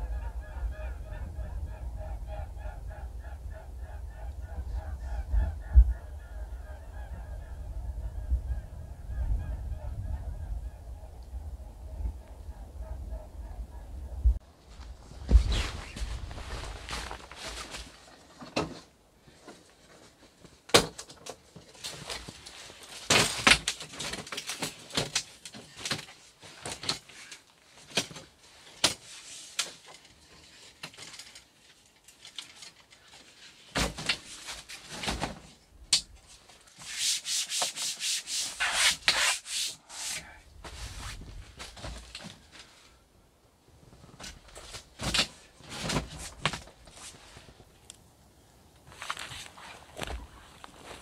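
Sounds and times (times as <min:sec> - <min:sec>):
tabletop rubbing and scraping: 0:36.8 - 0:41.3.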